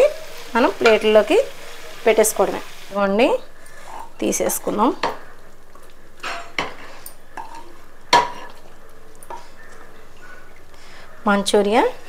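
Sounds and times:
pan clinking against plate: 6.2 - 8.6.

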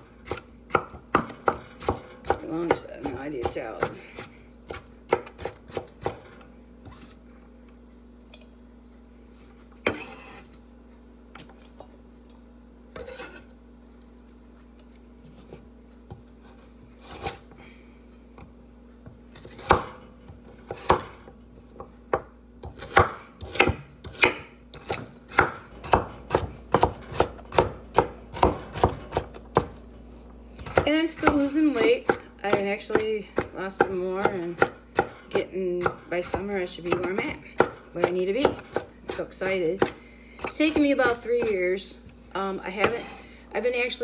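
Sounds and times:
knife chopping on wooden board: 0.2 - 4.0, 19.4 - 21.2, 22.1 - 29.7, 30.6 - 39.2.

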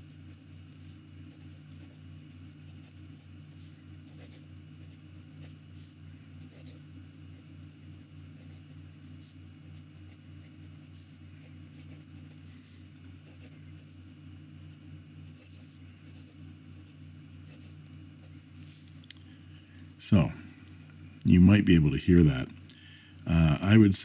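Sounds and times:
fountain pen scratching on paper: 0.0 - 18.4.

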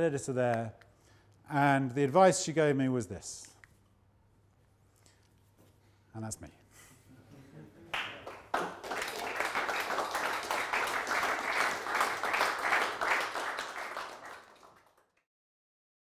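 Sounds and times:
audience applauding: 7.9 - 15.2.

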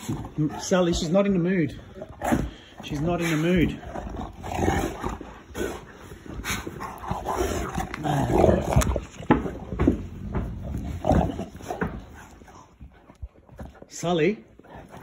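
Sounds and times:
scuffling and knocks: 6.0 - 14.0.

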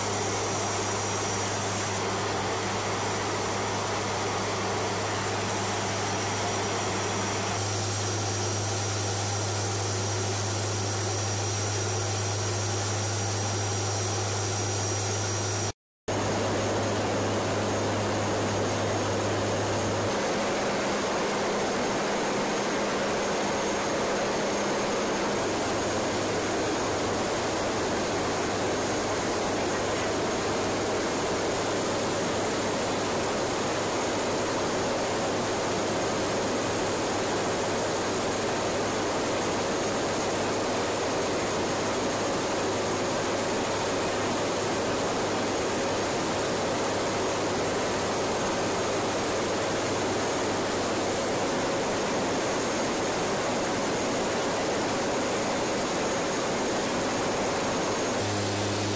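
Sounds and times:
engine and airflow rush: 0.0 - 33.4, 52.8 - 58.9.

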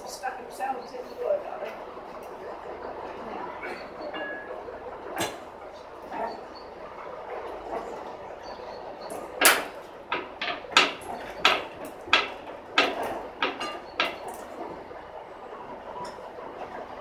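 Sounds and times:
sharp knocks on wooden press: 9.4 - 14.3.

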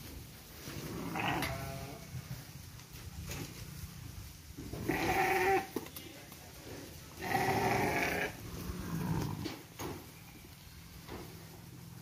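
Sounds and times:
sheep bleating: 1.0 - 2.1, 4.8 - 5.7, 7.2 - 9.4.

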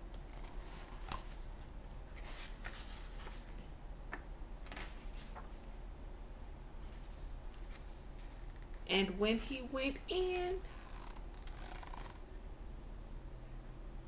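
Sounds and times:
book pages rustling: 0.1 - 5.6, 6.8 - 8.8, 10.8 - 12.2.

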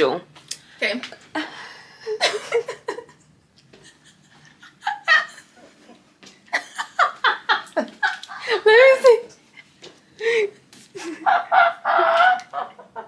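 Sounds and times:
person laughing: 10.2 - 13.0.

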